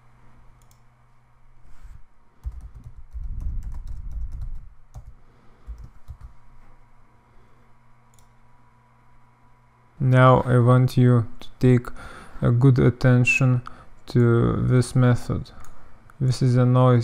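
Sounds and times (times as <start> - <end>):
keyboard typing: 2.4 - 6.4.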